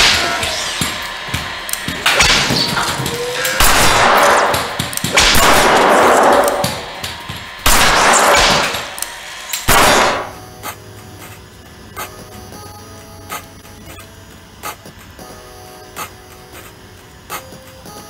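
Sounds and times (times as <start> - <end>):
revolver shots echoing: 1.7 - 10.4.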